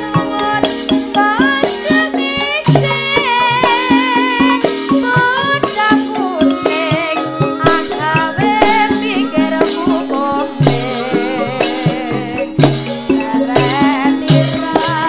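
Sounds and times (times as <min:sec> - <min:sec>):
rattling percussion: 0:00.0 - 0:15.0
woman singing into microphone: 0:00.0 - 0:15.0
hand drum strokes: 0:05.4 - 0:15.0.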